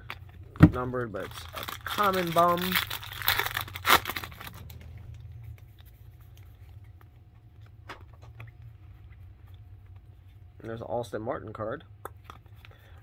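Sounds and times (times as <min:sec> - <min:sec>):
foil wrapper crinkling: 0:01.0 - 0:05.2.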